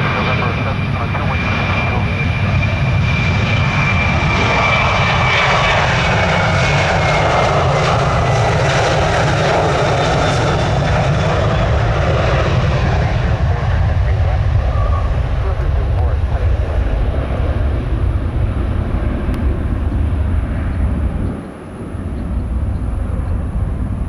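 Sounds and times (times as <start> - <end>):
jet engines roaring with whine: 0.0 - 24.0.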